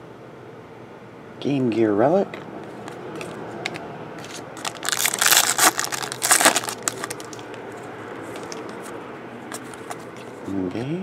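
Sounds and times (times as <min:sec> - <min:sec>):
cards rustling: 0:04.2 - 0:10.5
wrapper tearing and crackling: 0:04.6 - 0:07.5.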